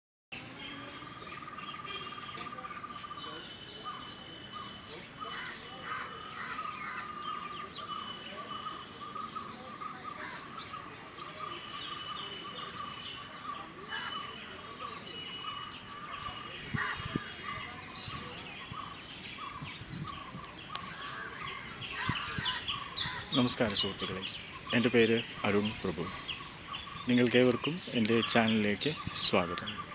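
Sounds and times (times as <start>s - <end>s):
birds chirping and calling: 0.4s - 29.9s
whistled bird phrases: 0.6s - 23.4s.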